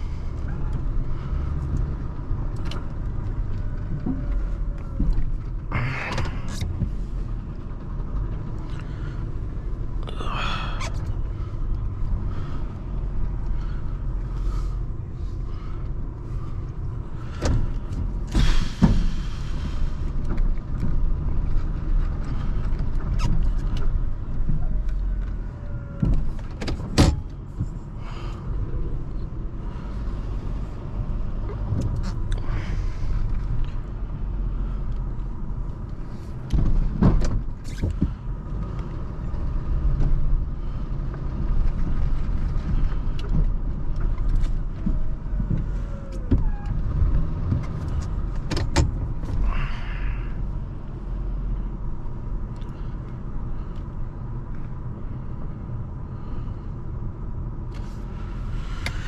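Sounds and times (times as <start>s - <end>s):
truck engine running: 0.0s - 55.4s
sharp knocks and clunks: 36.5s - 38.2s.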